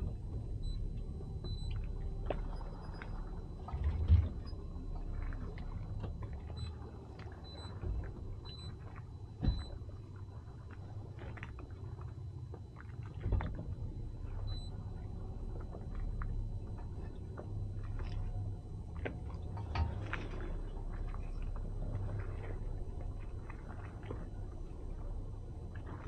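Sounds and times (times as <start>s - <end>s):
outboard motor idling: 0.0s - 26.0s.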